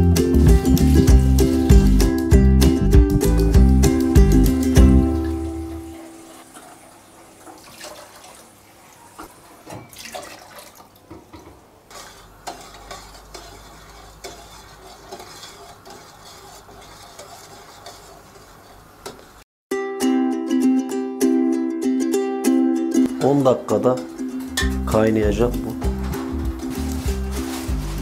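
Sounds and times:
background music: 0.0s - 6.0s, 19.7s - 28.0s.

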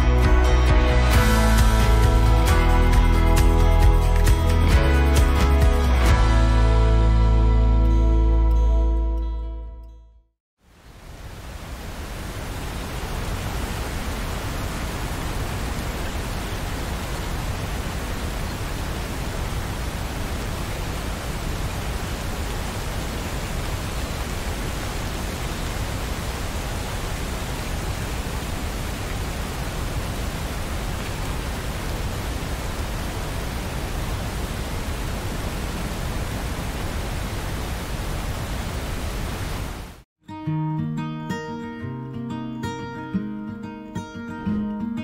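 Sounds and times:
heavy rain falling: 10.7s - 40.0s.

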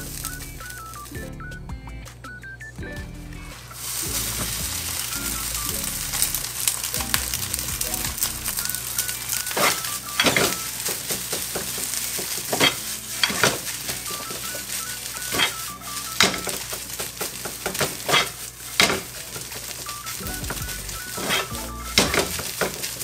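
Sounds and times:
rice sizzling in oil: 0.0s - 1.2s, 3.6s - 23.0s
spatula scraping a pan: 8.6s - 20.0s, 21.0s - 23.0s.

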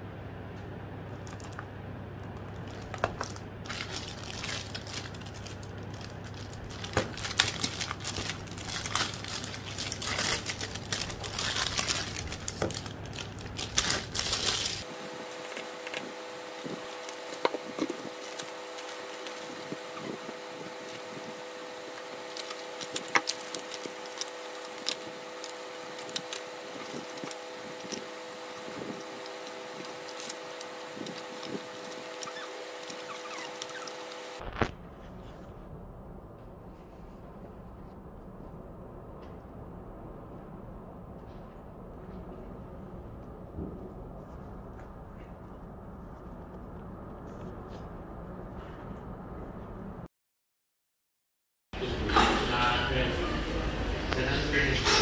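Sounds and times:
low background hum: 0.0s - 50.1s, 51.8s - 55.0s
plastic packaging crinkling: 2.4s - 34.7s.

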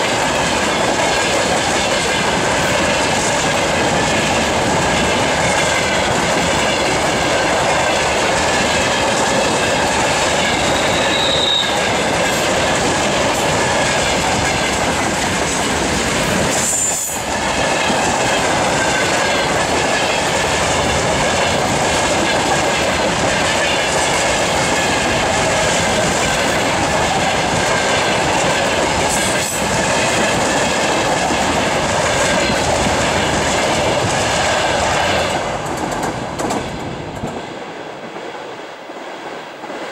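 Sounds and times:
freight train rumbling past: 0.0s - 39.9s
high wheel squeal: 10.4s - 12.1s.

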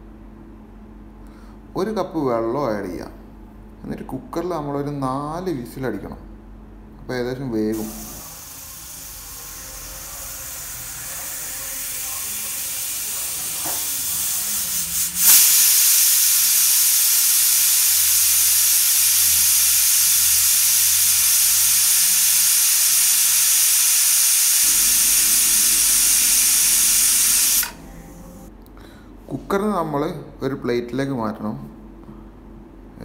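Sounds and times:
pressure cooker steam hissing: 7.7s - 28.5s
pressure cooker whistle venting: 7.8s - 28.5s.

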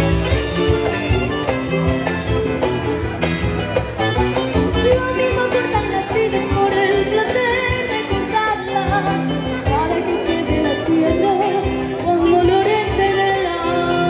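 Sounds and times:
acoustic guitars: 0.0s - 14.0s
boy singing: 4.8s - 14.0s.

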